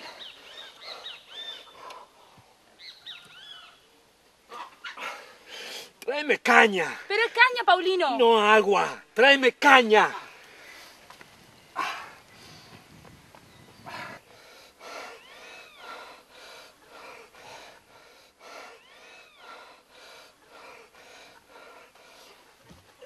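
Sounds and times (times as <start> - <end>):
high arching call: 0.0 - 2.2, 2.8 - 3.9, 4.5 - 5.9, 13.8 - 21.9
man breathing rapidly in pain: 11.8 - 12.9, 13.8 - 22.6.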